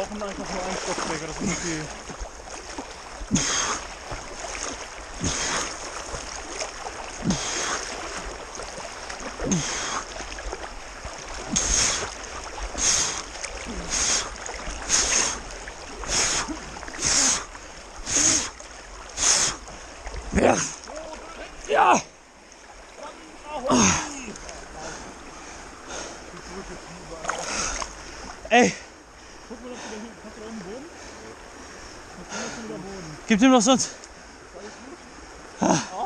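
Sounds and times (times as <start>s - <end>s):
swimming strokes splashing: 0.0s - 28.8s
flowing water rushing: 0.0s - 36.0s.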